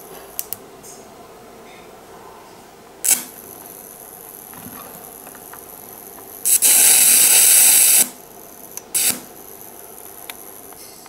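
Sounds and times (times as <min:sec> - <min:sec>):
electric welding arc hissing: 0:03.0 - 0:11.0.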